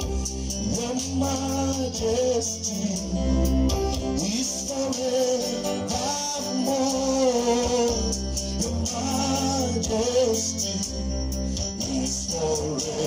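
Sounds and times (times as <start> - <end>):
instrumental backing with bass: 0.0 - 13.0
voices singing: 0.0 - 13.0.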